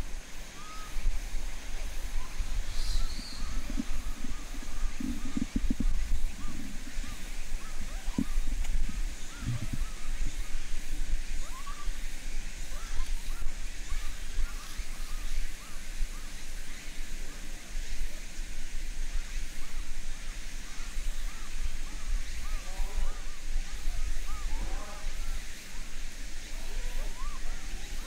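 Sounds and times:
steady low rumble: 0.0s - 16.8s
monkeys cooing: 2.0s - 12.0s, 26.5s - 28.0s.

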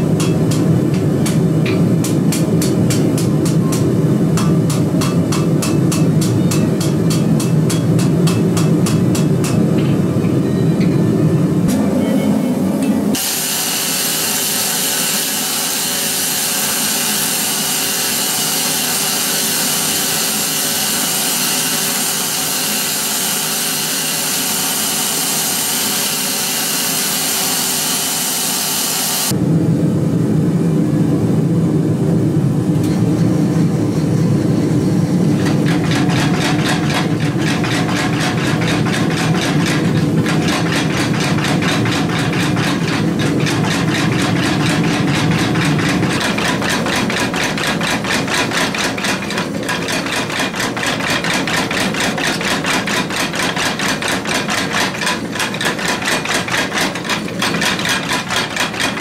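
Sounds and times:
power hammer running and striking: 0.0s - 11.0s, 11.7s - 29.4s, 35.2s - 59.0s
loud steady hiss: 13.2s - 29.3s.

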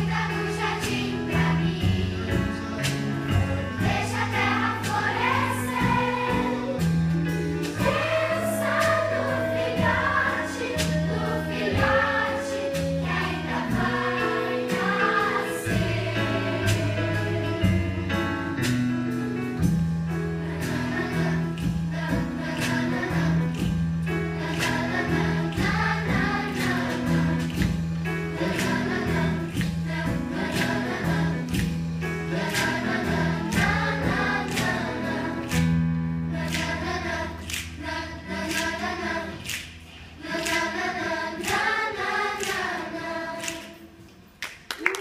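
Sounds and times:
held low keyboard notes: 0.0s - 39.2s
female choir singing in parts: 3.8s - 6.9s, 7.8s - 18.0s, 20.4s - 27.7s, 28.3s - 31.7s, 32.3s - 44.1s.

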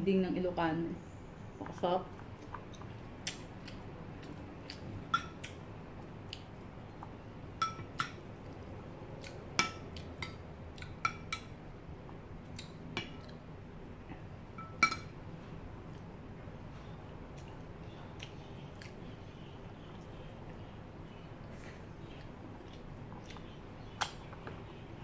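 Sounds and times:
metal spoon clinking on glass: 14.6s - 15.1s.

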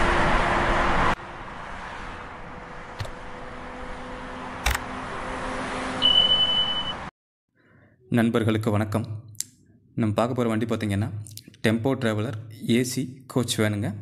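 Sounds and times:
city traffic noise: 0.0s - 7.1s.

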